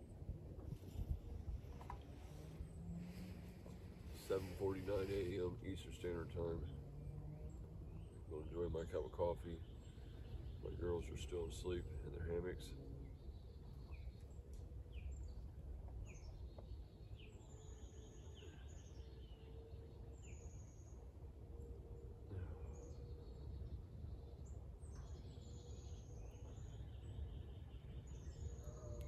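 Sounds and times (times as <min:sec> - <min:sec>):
steady low rumble: 0:00.0 - 0:16.6
birds chirping and whistling: 0:00.7 - 0:14.2.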